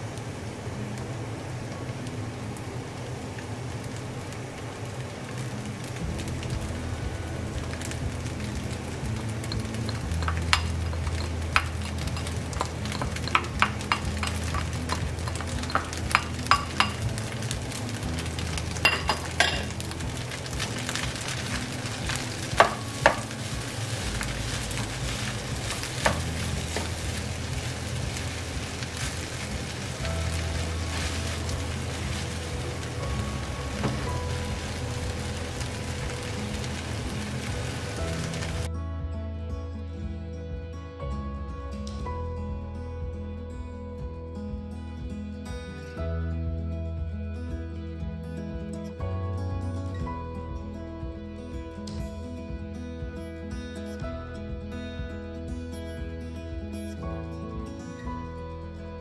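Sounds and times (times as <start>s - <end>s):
rice sizzling in frying pan: 0.0s - 38.7s.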